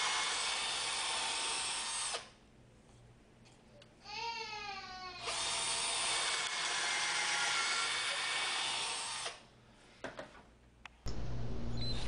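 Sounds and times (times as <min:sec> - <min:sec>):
cordless drill boring into wood: 0:00.0 - 0:02.3, 0:05.2 - 0:09.4.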